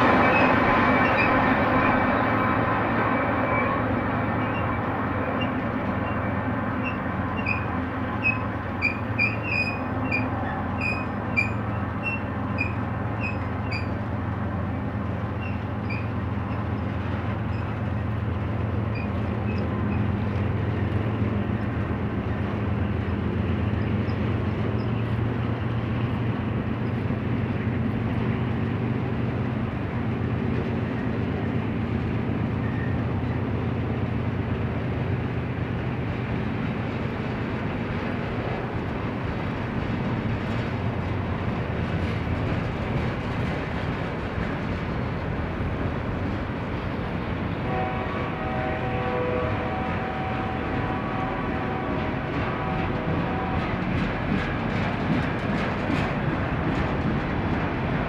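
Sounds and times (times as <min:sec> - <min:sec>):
freight train rumbling past: 0:00.0 - 0:58.0
short high squeaks: 0:06.8 - 0:14.0, 0:15.4 - 0:16.7.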